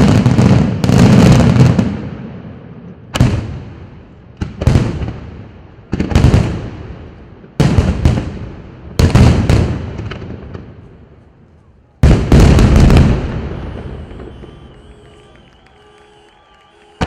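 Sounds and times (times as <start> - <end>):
firework shells bursting: 12.6 - 17.0.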